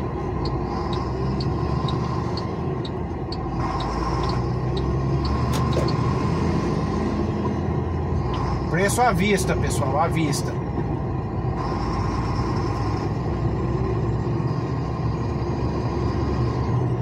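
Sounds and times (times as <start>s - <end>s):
faint regular ticking: 0.0s - 6.1s
diesel truck engine rumble: 0.0s - 17.0s.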